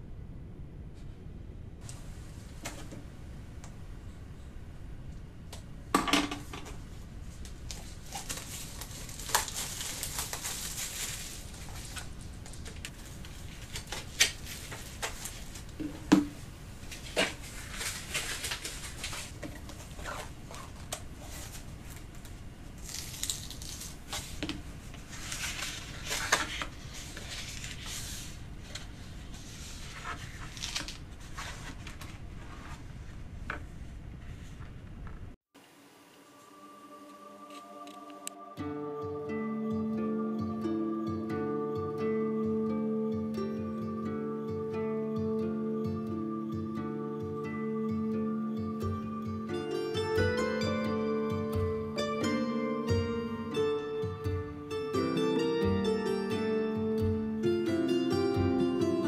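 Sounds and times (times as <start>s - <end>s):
pages being opened: 7.7s - 15.8s, 16.9s - 33.2s
plastic wrap crinkling and tearing: 7.7s - 15.8s, 16.9s - 24.4s, 25.0s - 28.4s, 29.7s - 32.1s.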